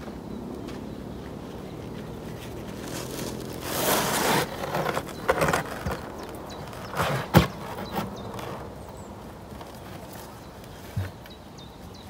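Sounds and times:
wood scraping: 0:01.9 - 0:08.8.

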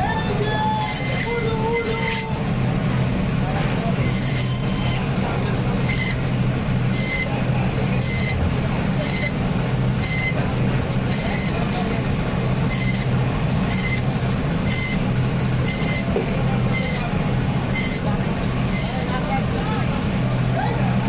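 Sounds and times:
band saw cutting through bone: 0:00.6 - 0:02.4, 0:04.0 - 0:06.2, 0:06.8 - 0:09.4, 0:10.0 - 0:12.0, 0:12.6 - 0:17.1, 0:17.7 - 0:19.3.

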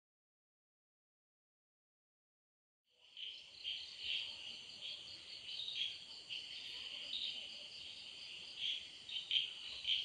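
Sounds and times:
crickets chirring: 0:03.0 - 0:10.0.

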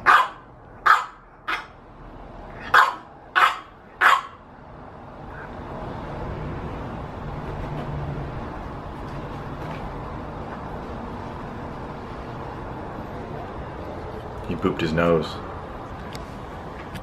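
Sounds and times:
puppy barking: 0:00.0 - 0:01.8, 0:02.6 - 0:04.4.

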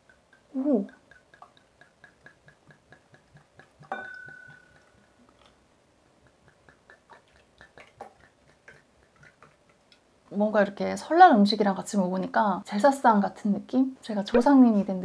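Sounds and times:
fast ticking: 0:00.0 - 0:10.0
bottle knocking glass: 0:03.8 - 0:05.0.

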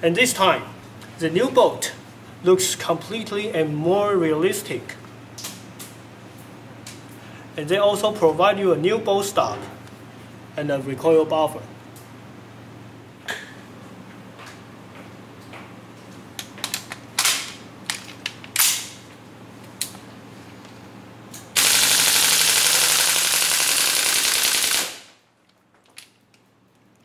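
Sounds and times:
airsoft rifle full-auto fire: 0:21.6 - 0:25.2.

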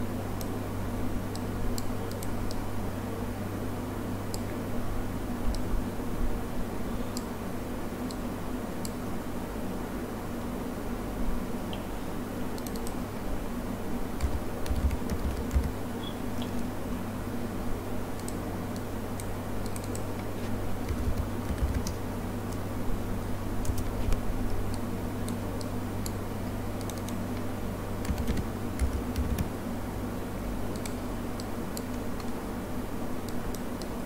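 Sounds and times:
low electrical hum: 0:00.0 - 0:34.0
keyboard key clicks: 0:14.2 - 0:15.8, 0:19.2 - 0:22.0, 0:28.0 - 0:29.5.

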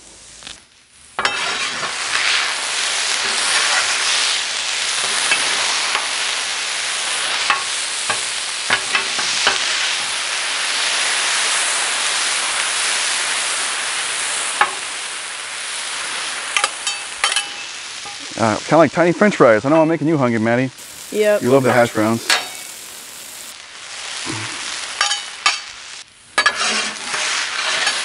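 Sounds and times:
potatoes sizzling on a griddle: 0:00.0 - 0:28.0
metal spatulas scraping: 0:01.2 - 0:02.0, 0:22.3 - 0:22.7, 0:26.4 - 0:28.0
spatulas clacking on steel: 0:16.6 - 0:18.2.

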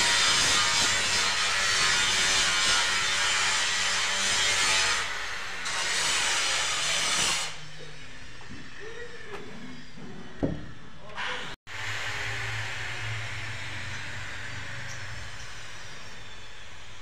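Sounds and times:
tool scraping plaster: 0:00.0 - 0:07.6.

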